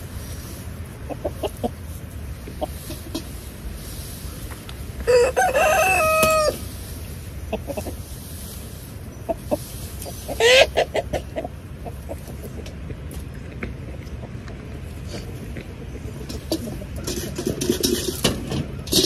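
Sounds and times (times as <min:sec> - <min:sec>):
rooster crowing: 0:05.0 - 0:06.6
rooster squawk: 0:05.0 - 0:06.6, 0:10.1 - 0:11.5.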